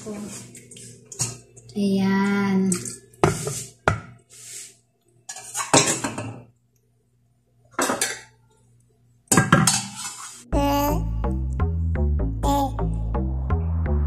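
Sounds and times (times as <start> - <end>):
ladle scraping cooking pot: 9.6 - 10.5.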